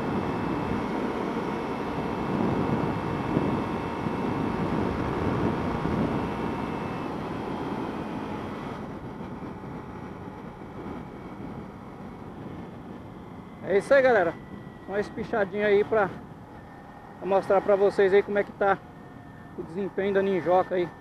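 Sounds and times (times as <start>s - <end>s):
wind rush over microphone: 0.0s - 16.4s
motorcycle engine: 0.0s - 21.0s.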